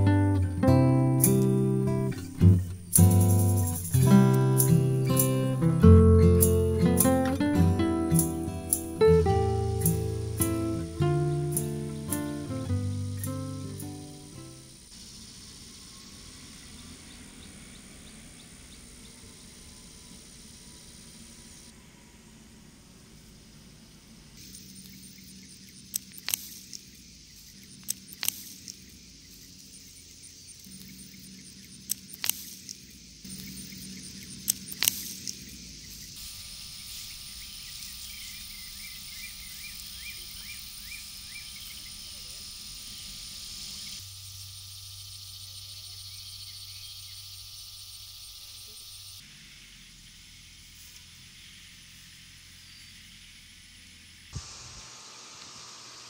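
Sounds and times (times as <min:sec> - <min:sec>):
small chirps: 0:00.0 - 0:56.0
steady hiss: 0:00.0 - 0:56.0
sharp clicks: 0:24.4 - 0:36.2
thin high whine: 0:54.3 - 0:56.0.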